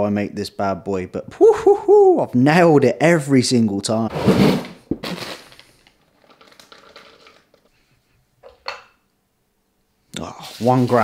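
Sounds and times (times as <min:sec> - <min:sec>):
faint crinkling: 0:05.0 - 0:08.0
salt shaker shaking: 0:10.3 - 0:11.0.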